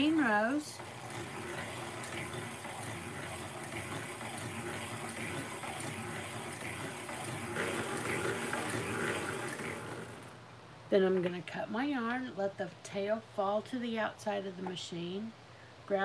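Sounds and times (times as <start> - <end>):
knitting machine whirring: 0.0 - 10.4.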